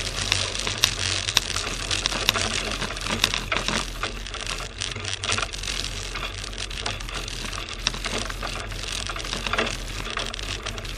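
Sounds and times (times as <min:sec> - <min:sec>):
clicking and rattling from bumps: 0:00.0 - 0:10.9.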